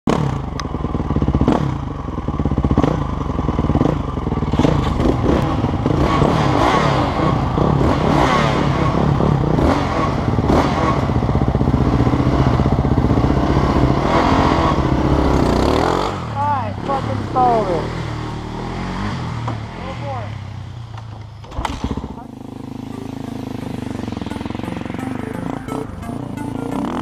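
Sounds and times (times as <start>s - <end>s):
quad engine revving: 0.1s - 20.8s, 21.4s - 27.0s.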